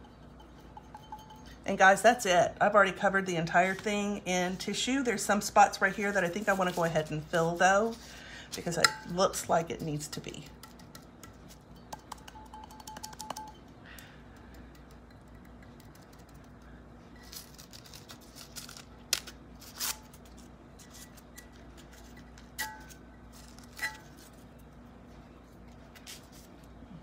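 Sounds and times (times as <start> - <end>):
faint steady hum: 0.0 - 27.0
tissue paper crinkling and tearing: 17.2 - 20.4.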